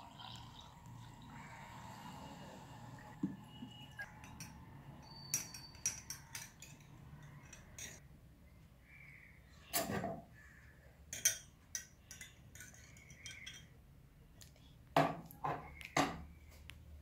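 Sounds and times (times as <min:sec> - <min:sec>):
metal spoon clinking glass: 0:04.0 - 0:08.0, 0:11.1 - 0:13.7.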